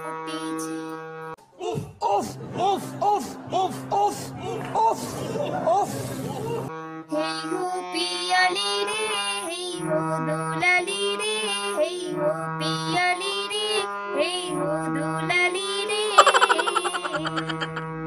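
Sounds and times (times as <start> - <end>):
woman singing: 7.1 - 17.7.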